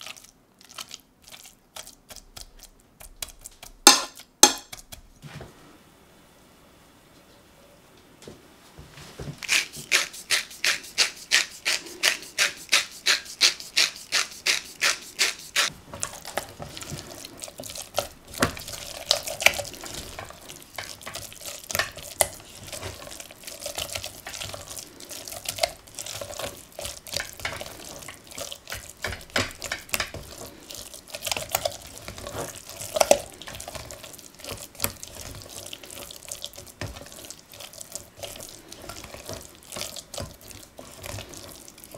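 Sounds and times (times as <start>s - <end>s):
salt grinder crunching: 9.4s - 15.7s
spatula scraping puree in saucepan: 9.4s - 41.9s.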